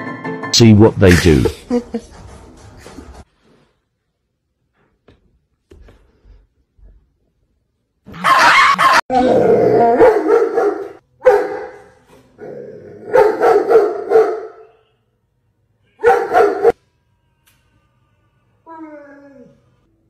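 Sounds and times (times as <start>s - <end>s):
dog howling and barking: 8.2s - 11.8s, 16.0s - 16.8s.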